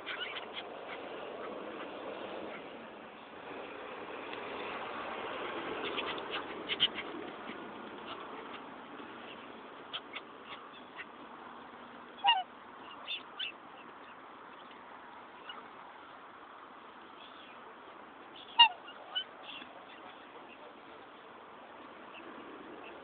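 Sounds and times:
swan calls with falling pitch: 0:12.2 - 0:12.5.

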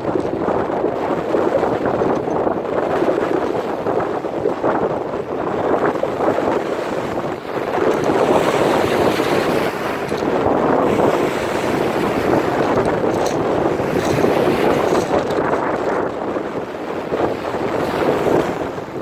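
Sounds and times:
waves washing onto pebbles: 0:00.0 - 0:19.0
wind buffeting microphone: 0:00.0 - 0:19.0.

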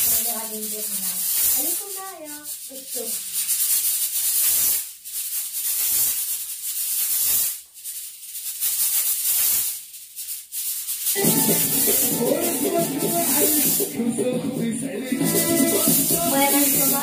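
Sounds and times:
pressure cooker steam hissing: 0:00.0 - 0:04.9, 0:11.1 - 0:17.0.

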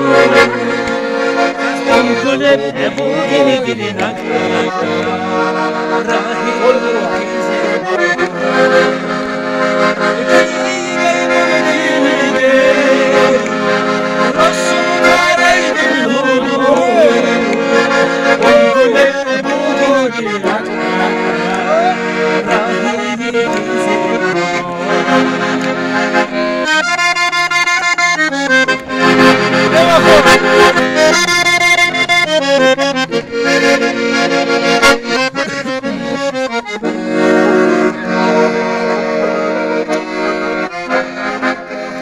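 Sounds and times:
accordion folk tune: 0:00.0 - 0:42.0
man singing: 0:01.6 - 0:09.0, 0:10.2 - 0:25.5.

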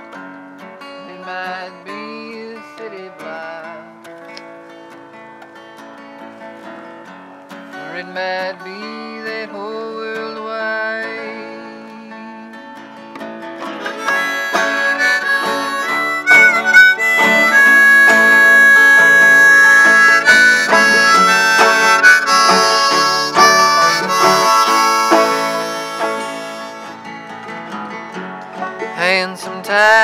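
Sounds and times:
strummed acoustic guitar: 0:00.0 - 0:30.0
banjo: 0:03.4 - 0:30.0
harmonica solo: 0:13.6 - 0:27.6.

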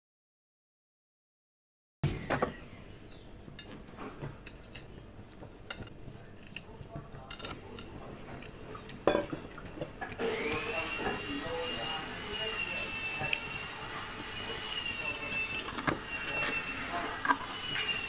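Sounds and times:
dishes clinking: 0:07.2 - 0:11.3
steady high tone: 0:10.2 - 0:18.0.

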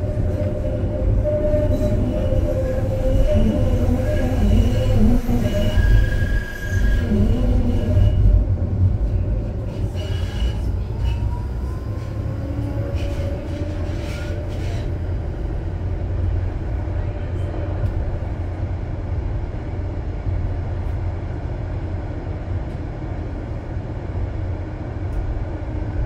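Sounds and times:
wheels squealing: 0:00.0 - 0:08.4
tram wheels rumbling on rail: 0:00.0 - 0:26.0.

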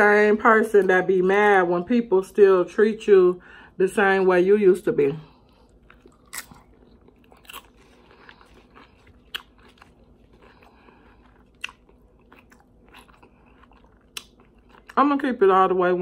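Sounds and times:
chewing crunchy chips: 0:05.4 - 0:15.2.

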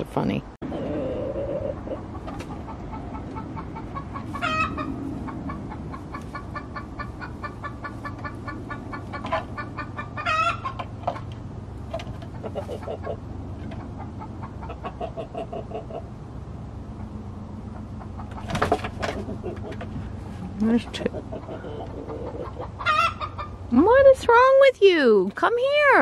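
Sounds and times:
chicken drawn-out call: 0:00.6 - 0:11.3, 0:12.3 - 0:16.2, 0:21.3 - 0:23.6
chickens clucking: 0:00.6 - 0:23.9.

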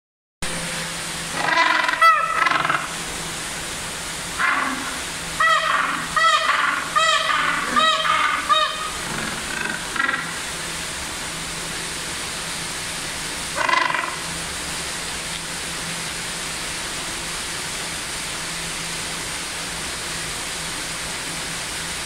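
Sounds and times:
background hiss with low hum: 0:00.5 - 0:22.0
penguin call: 0:01.3 - 0:03.0, 0:04.4 - 0:10.4, 0:13.6 - 0:14.3.

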